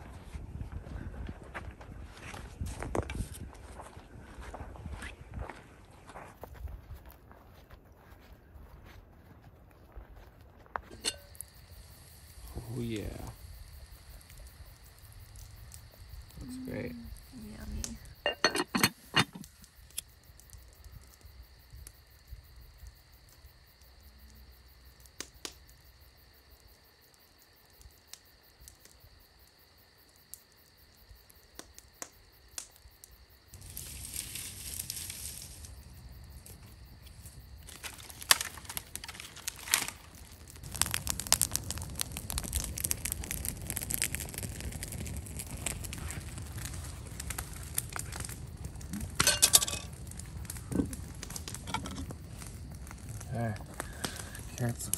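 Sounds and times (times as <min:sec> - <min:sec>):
night insects trilling: 0:03.6 - 0:54.9
faint clicks and crackles: 0:33.6 - 0:54.9.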